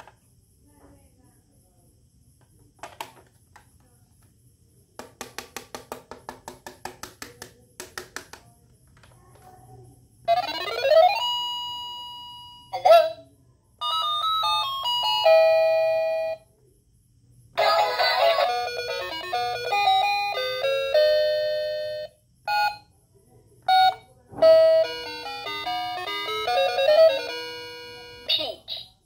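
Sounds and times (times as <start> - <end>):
toy phone beeping melodies: 10.3 - 13.2, 13.8 - 16.4, 17.6 - 22.9, 23.7 - 28.9.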